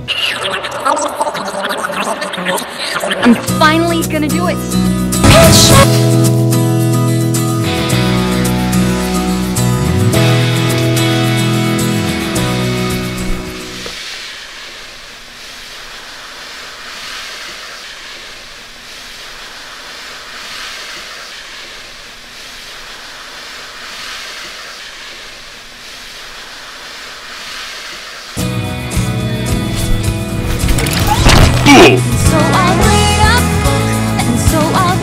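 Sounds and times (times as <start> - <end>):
hair swishing across floor: 15.4 - 28.4.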